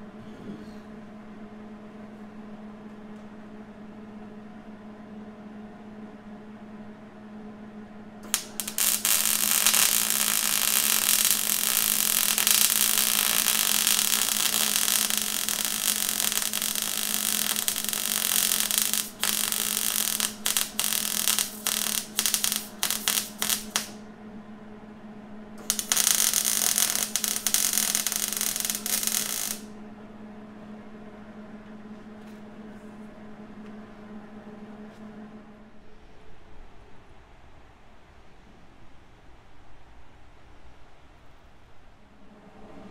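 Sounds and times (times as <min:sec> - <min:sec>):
arc welding crackling hiss: 0:08.2 - 0:24.0, 0:25.6 - 0:29.7.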